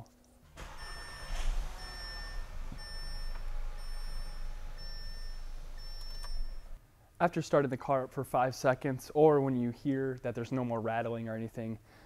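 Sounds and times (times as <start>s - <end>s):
car engine idling: 0.4s - 6.8s
car warning chime beeping: 0.5s - 6.8s.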